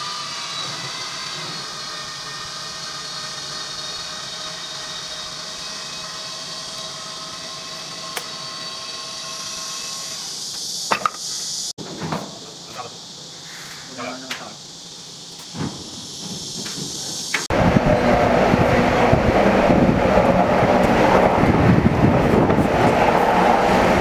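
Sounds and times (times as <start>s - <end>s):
electric motors whining: 0.0s - 11.7s, 15.2s - 24.0s
hiss: 0.0s - 17.5s.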